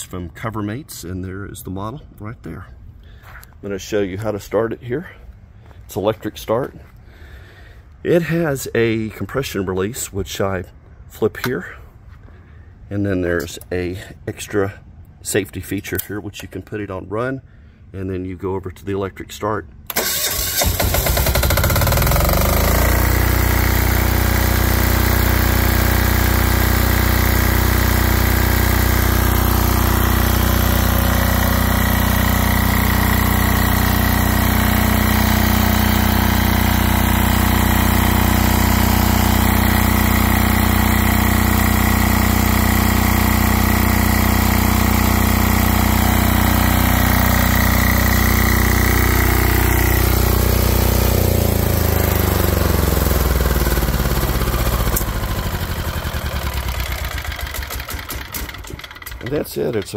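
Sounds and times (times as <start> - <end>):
diesel engine running: 19.9 - 59.9.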